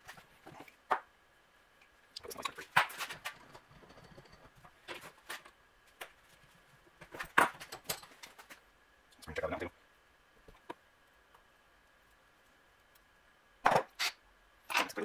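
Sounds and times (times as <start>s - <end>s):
small metal parts and tools clattering: 2.3s - 5.2s, 7.2s - 8.6s.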